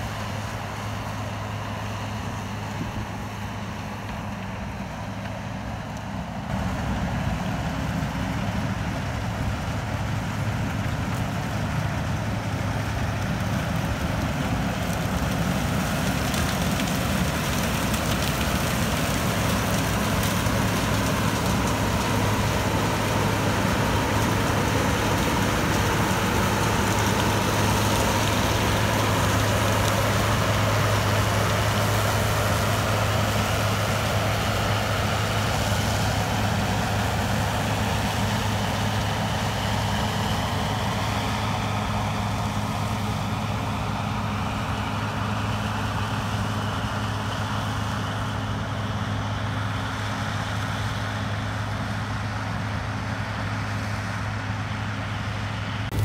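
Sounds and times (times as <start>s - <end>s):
combine harvester engine hum: 0.0s - 56.0s
harvester threshing rush: 6.6s - 43.0s.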